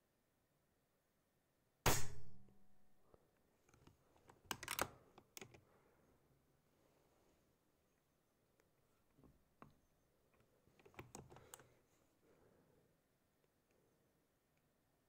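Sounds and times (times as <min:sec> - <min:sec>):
air rifle shot: 0:01.8 - 0:02.5.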